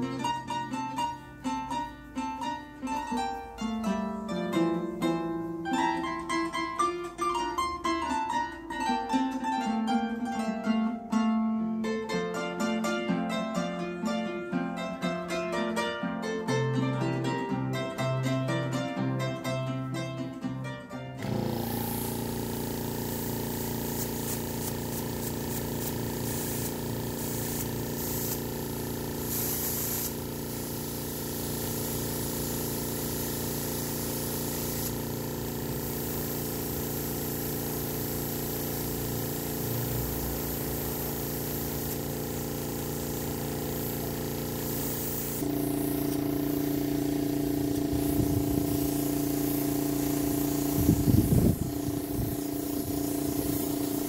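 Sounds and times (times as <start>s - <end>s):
spray gun hissing: 21.2s - 54.0s.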